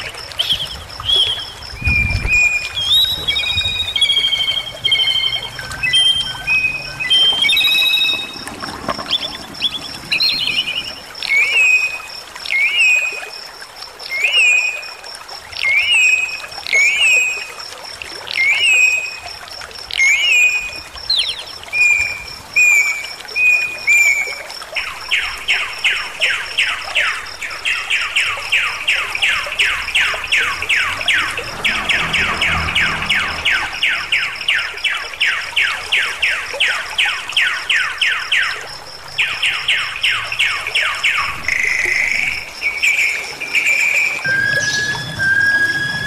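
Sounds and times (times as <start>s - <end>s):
stream rushing: 0.0s - 46.0s
bird whistling and chattering: 0.4s - 8.4s, 43.8s - 46.0s.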